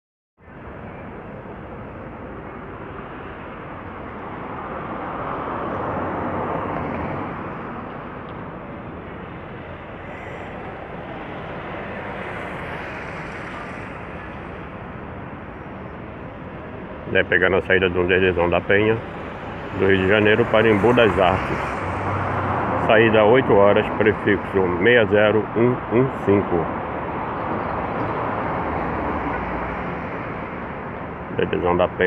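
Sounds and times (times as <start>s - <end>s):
road traffic rumble: 0.4s - 32.0s
vehicle passing close: 9.7s - 25.2s.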